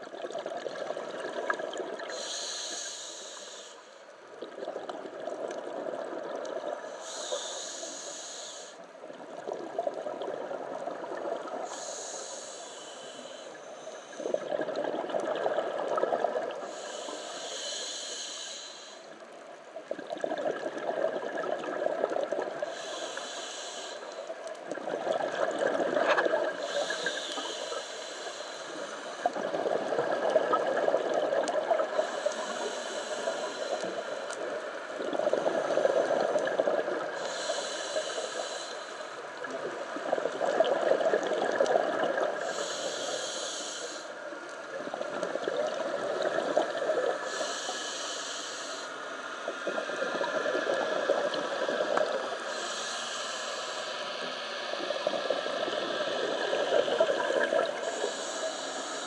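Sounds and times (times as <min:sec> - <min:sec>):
exhaled bubbles rumbling: 0:00.0 - 0:02.1, 0:14.2 - 0:16.6, 0:19.8 - 0:22.7, 0:24.6 - 0:26.7, 0:29.2 - 0:32.0, 0:35.0 - 0:37.2, 0:39.4 - 0:42.5, 0:44.7 - 0:47.3
hissing regulator inhale: 0:02.0 - 0:04.1, 0:06.8 - 0:08.9, 0:11.4 - 0:15.2, 0:16.5 - 0:19.3, 0:22.6 - 0:24.8, 0:25.5 - 0:30.3, 0:31.7 - 0:44.4, 0:45.6 - 0:59.0.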